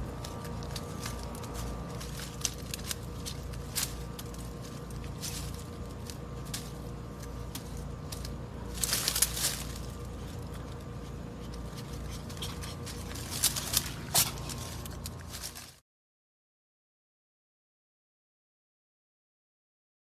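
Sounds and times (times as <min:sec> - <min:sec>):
leaves rustling and crackling: 0:00.0 - 0:15.8
steady low hum: 0:00.0 - 0:15.8.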